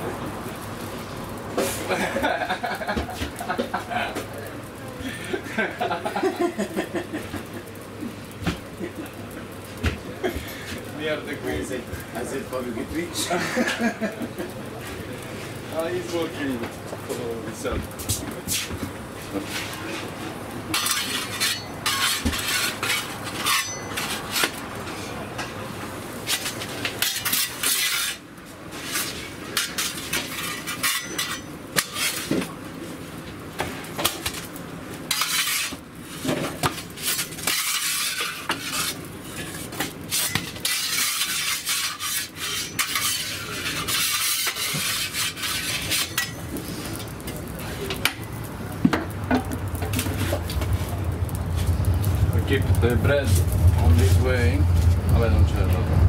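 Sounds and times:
metal peel scraping and clinking: 20.7s - 25.0s, 26.2s - 32.3s, 35.1s - 47.3s.

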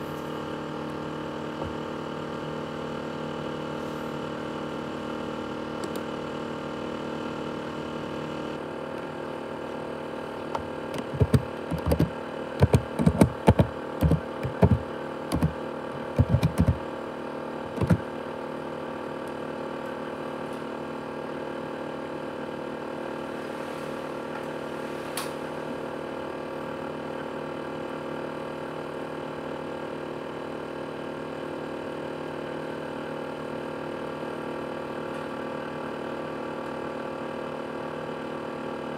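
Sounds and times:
laptop fan whining: 10.2s - 17.0s, 17.6s - 18.2s
sharp knocks and clicks: 10.5s - 16.8s, 17.8s - 18.0s.

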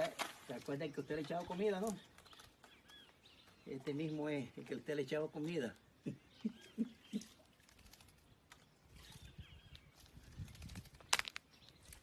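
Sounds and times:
faint bird chirps: 6.0s - 12.0s.

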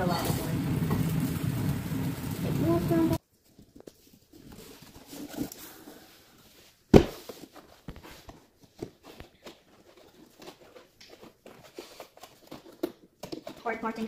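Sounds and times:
cardboard tapping and rustling: 6.9s - 13.7s.

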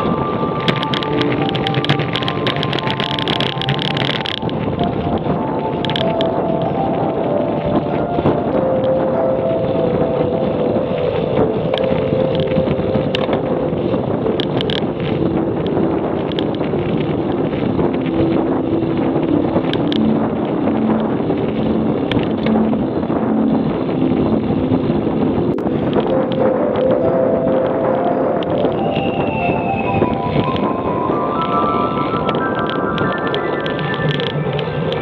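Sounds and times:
tyre and road noise: 0.0s - 35.0s
wind rush on microphone: 0.0s - 35.0s
small clicks: 0.6s - 7.0s, 14.4s - 17.2s, 31.4s - 35.0s.

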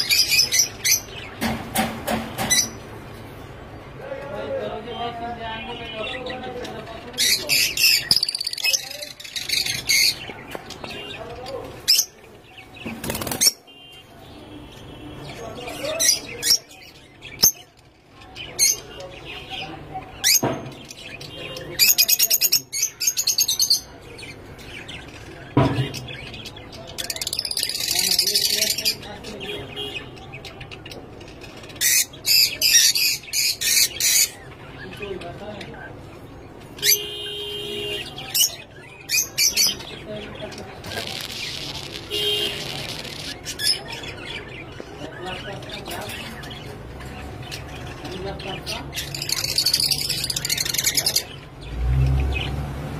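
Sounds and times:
lovebirds chattering and squawking: 0.0s - 52.6s
birds flapping wings: 12.9s - 13.6s.

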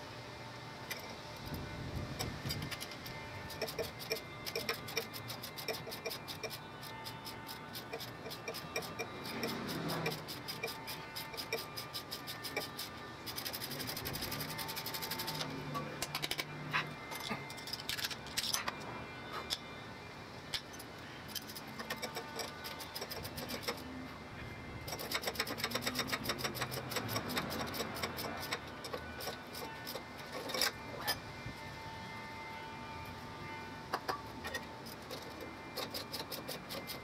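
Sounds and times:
ratchet wrench clicking: 2.2s - 16.5s, 20.5s - 23.8s, 24.9s - 30.8s, 34.5s - 37.0s.

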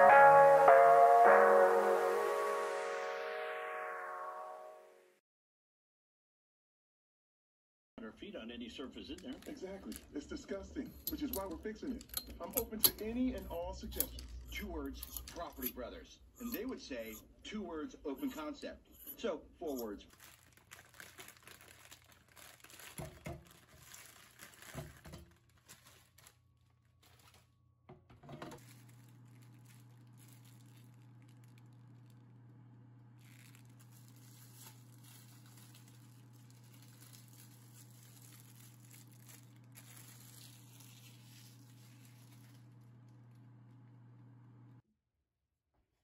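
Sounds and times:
plastic bag crinkling: 8.9s - 15.8s, 18.2s - 27.6s, 28.4s - 32.4s, 33.2s - 43.9s
sharp handling noises: 10.8s - 15.8s.

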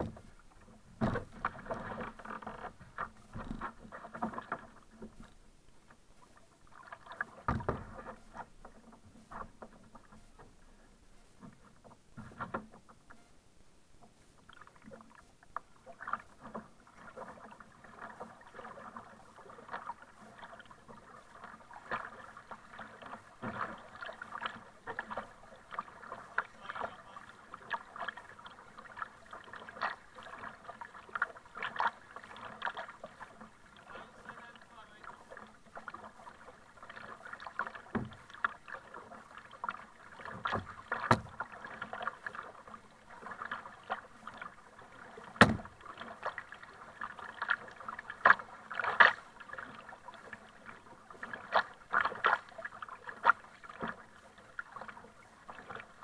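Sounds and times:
water slapping against hull: 0.0s - 10.6s, 14.0s - 56.0s
kayak paddle strokes in water: 0.0s - 56.0s
loud thump: 45.4s - 45.7s.

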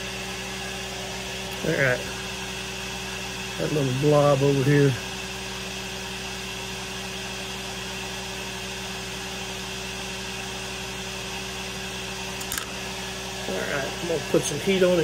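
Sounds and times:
electric machine humming: 0.0s - 15.0s.

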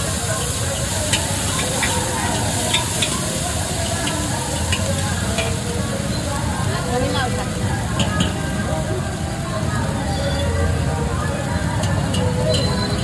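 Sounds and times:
food sizzling in hot pan: 0.0s - 9.8s.

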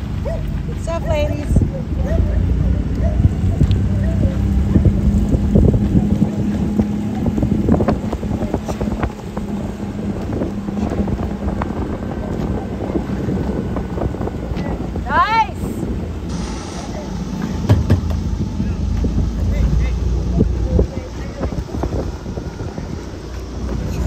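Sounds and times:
boat engine running: 0.0s - 24.0s
water rushing past hull: 0.0s - 24.0s
wind buffeting microphone: 0.0s - 24.0s.

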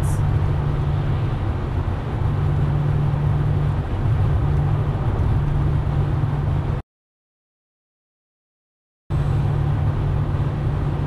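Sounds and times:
car engine droning: 0.0s - 6.8s, 9.1s - 11.0s
road and wind noise: 0.0s - 6.8s, 9.1s - 11.0s.

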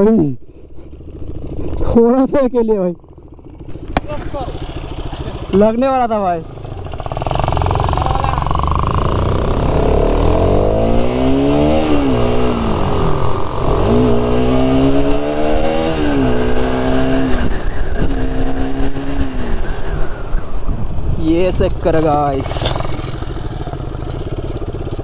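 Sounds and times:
motorcycle engine accelerating: 0.4s - 25.0s
wind rushing over microphone: 6.9s - 24.0s.

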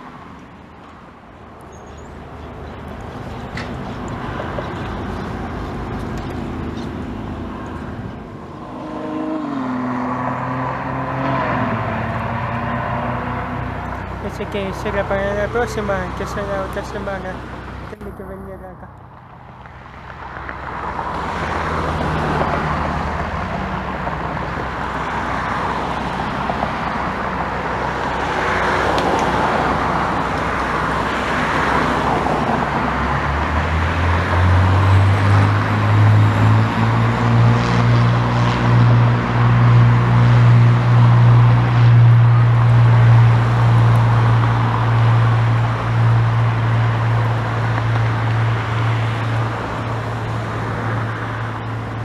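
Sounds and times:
propeller aircraft engine droning: 0.0s - 33.0s.

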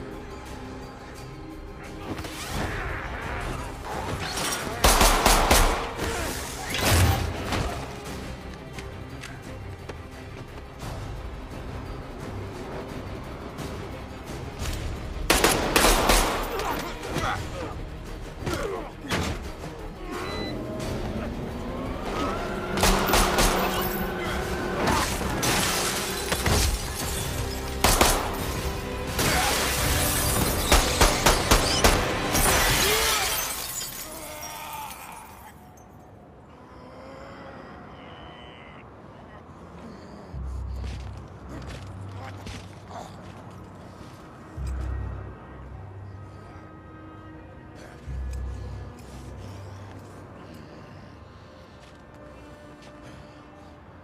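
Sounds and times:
dramatic film score: 0.0s - 54.0s
glass shattering: 29.2s - 34.6s.

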